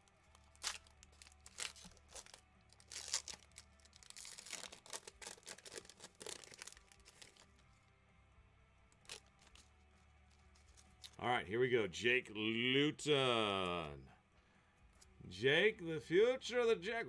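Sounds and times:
foil wrapper crinkling: 0.0 - 7.8, 8.9 - 11.2.

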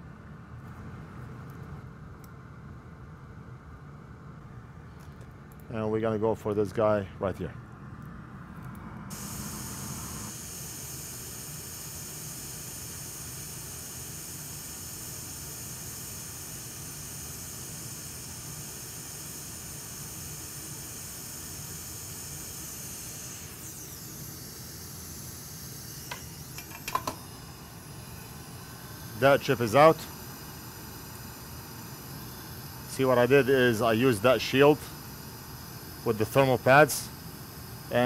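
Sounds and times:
hot air station hissing: 9.1 - 38.0.

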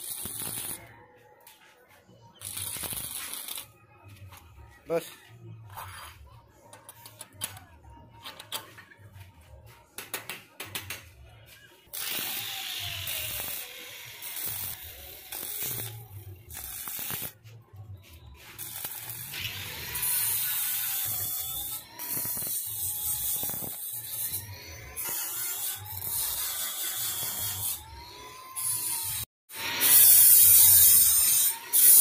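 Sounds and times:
welding arc crackling: 0.0 - 0.8, 2.4 - 3.7, 11.9 - 17.4, 18.4 - 24.4.

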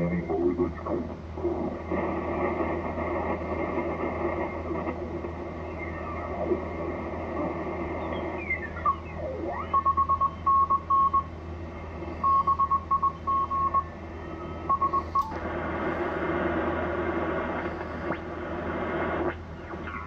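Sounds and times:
radio band hiss: 0.0 - 9.8, 14.9 - 20.0
loud radio static: 0.0 - 10.4, 14.8 - 20.0
morse code tone beeping: 9.6 - 11.3, 12.2 - 13.9, 14.7 - 15.4.

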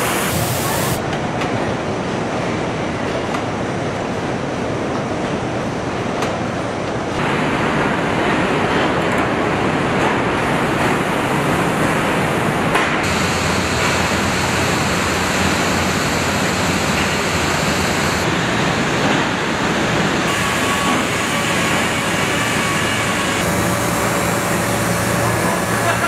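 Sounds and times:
dense loud hiss: 0.0 - 1.0, 9.4 - 26.0.

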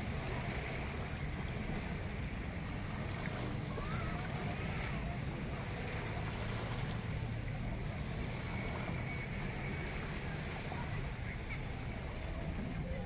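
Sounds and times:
small waves washing on sand: 0.0 - 13.0.

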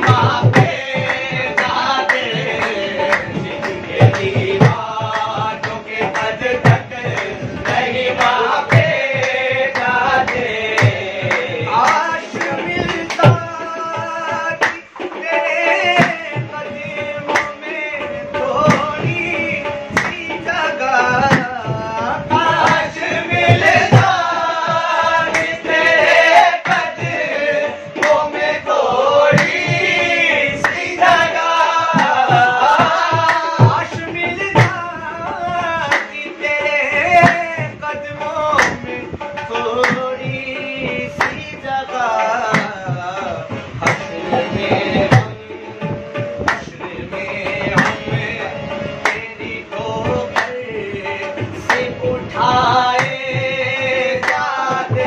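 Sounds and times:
hand-clapping: 0.0 - 13.6, 14.6 - 14.8, 17.3 - 17.6, 20.0 - 20.2, 21.2 - 21.6, 22.6 - 23.0, 25.3 - 25.6, 26.3 - 27.1, 28.0 - 28.3, 29.4 - 29.6, 30.6 - 30.8, 32.0 - 33.9, 34.6 - 34.8, 35.9 - 36.2, 38.6 - 40.1, 41.2 - 41.4, 42.5 - 42.8, 43.8 - 44.1, 46.5 - 46.7, 47.8 - 48.0, 49.0 - 49.2, 50.3 - 50.6, 51.6 - 51.9, 53.0 - 53.2, 54.2 - 55.0
hand drum beating: 0.0 - 55.0
harmonium: 0.0 - 55.0
lead and chorus voices singing: 0.0 - 55.0.

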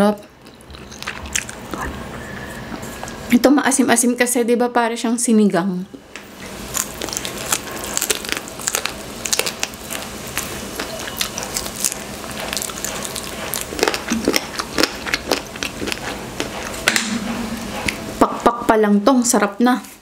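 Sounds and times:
chewing food: 0.1 - 3.3, 6.4 - 16.9.

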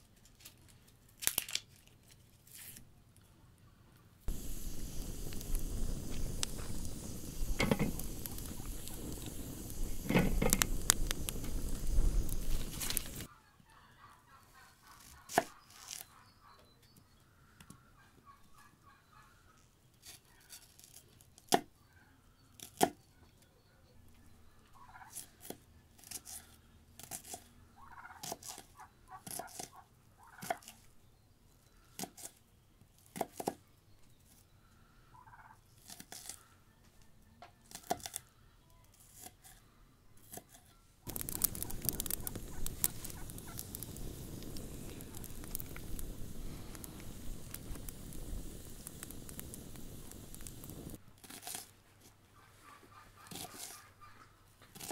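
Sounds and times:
wood fire crackling and hissing: 4.3 - 13.3, 15.0 - 16.1, 41.0 - 51.7, 54.7 - 54.9
hens clucking: 4.8 - 16.6, 24.8 - 25.2, 27.8 - 30.6, 41.1 - 46.3, 52.4 - 54.4.

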